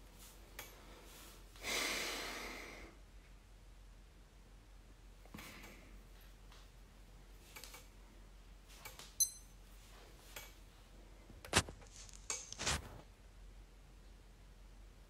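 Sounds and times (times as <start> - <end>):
high clink: 9.2 - 9.6.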